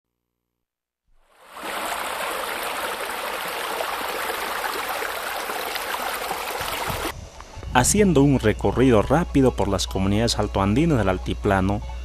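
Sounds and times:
running water rushing: 0:01.3 - 0:07.1.

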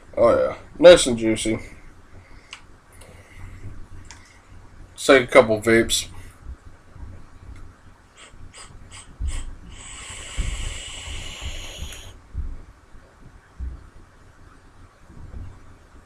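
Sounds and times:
breathy exhale: 0:08.2 - 0:12.2
hiss of vape draw: 0:08.2 - 0:12.2.

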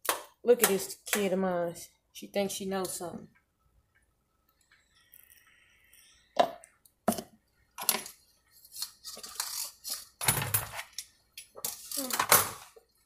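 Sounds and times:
spoon scraping and stirring in pot: 0:07.1 - 0:11.9.

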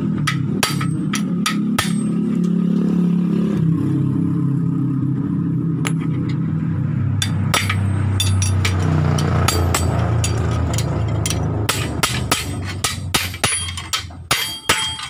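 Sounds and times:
hammer striking steel drift: 0:00.0 - 0:02.7, 0:07.2 - 0:15.0
engine humming: 0:00.0 - 0:15.0.

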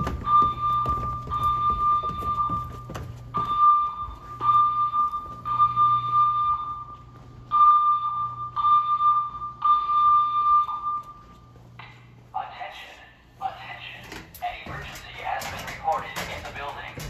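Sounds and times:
fire alarm pulsing tone: 0:00.0 - 0:12.0.

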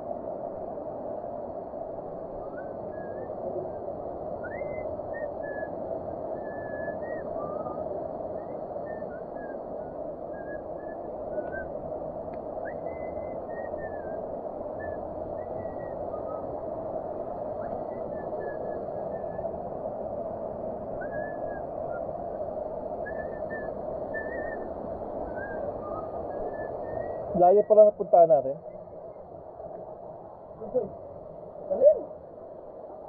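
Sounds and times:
short whistled chirps: 0:10.3 - 0:11.7, 0:23.0 - 0:24.7, 0:25.3 - 0:27.4.

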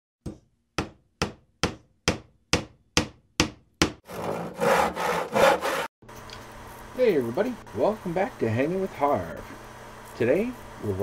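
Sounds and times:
hand tool rasping wood: 0:04.0 - 0:05.9.

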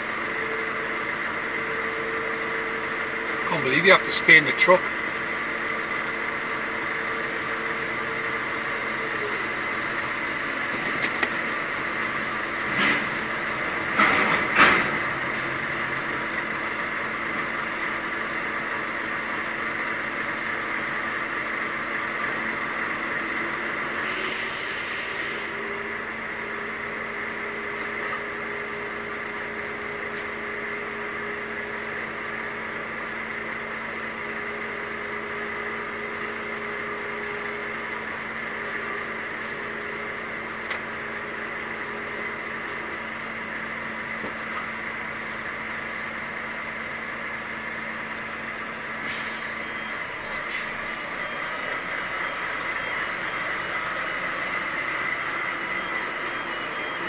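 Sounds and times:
idling lorry hum: 0:00.0 - 0:57.0
short hiss: 0:49.0 - 0:49.6.

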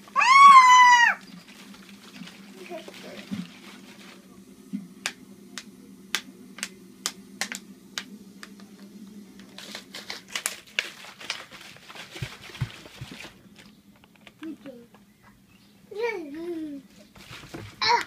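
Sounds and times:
faint low hum: 0:00.0 - 0:18.0
plastic bottle crinkling: 0:01.2 - 0:04.2, 0:09.4 - 0:14.4, 0:17.1 - 0:18.0.

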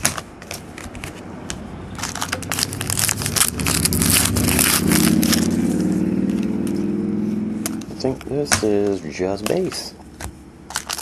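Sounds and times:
foil wrapper tearing and crinkling: 0:02.0 - 0:05.9, 0:10.7 - 0:11.0.

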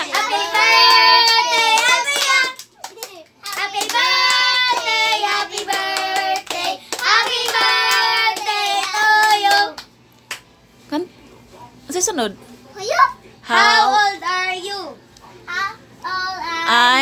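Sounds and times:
children clapping: 0:00.1 - 0:00.4, 0:01.0 - 0:08.6.

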